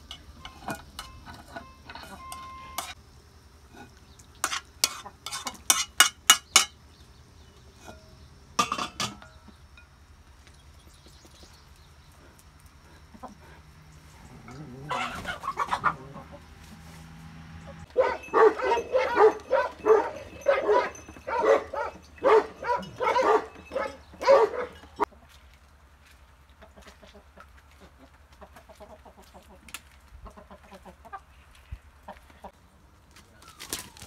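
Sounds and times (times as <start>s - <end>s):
soft chicken clucks: 14.2s - 16.5s, 26.5s - 32.6s
hen cackling: 14.2s - 16.6s, 26.6s - 32.6s.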